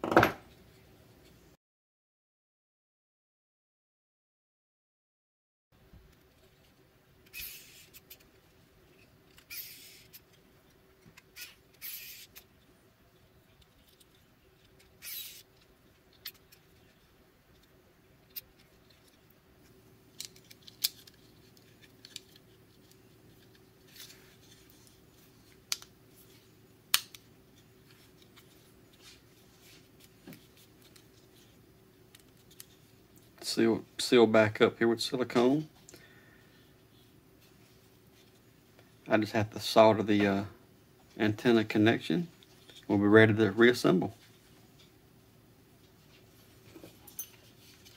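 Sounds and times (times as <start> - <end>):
electric screwdriver whirring: 9.5 - 10.2, 11.4 - 12.3.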